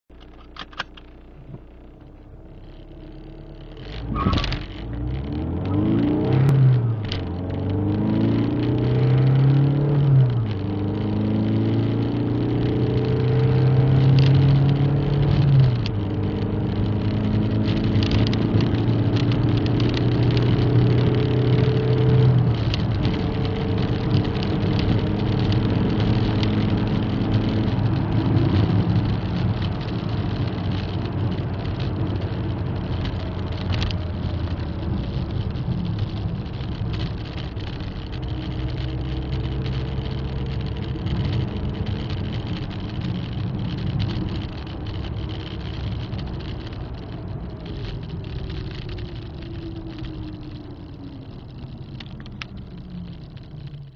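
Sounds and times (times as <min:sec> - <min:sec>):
car engine accelerating through gears: 0:01.4 - 0:53.9.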